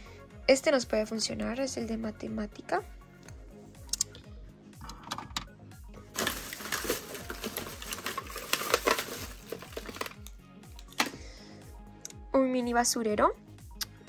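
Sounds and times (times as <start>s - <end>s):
background music: 0.0s - 14.0s
plastic bag crinkling and rustling: 6.1s - 10.3s.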